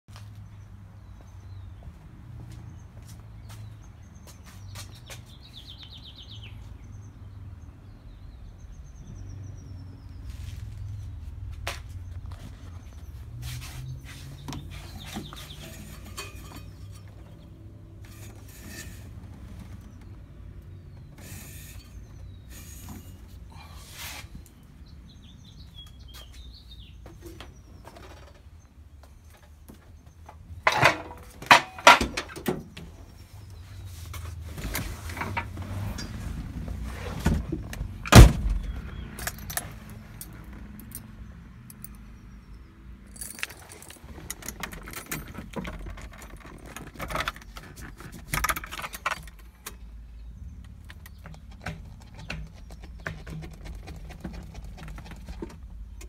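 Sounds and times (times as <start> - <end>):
car door clacks: 38.1 - 38.8
car door slam: 38.1 - 38.8.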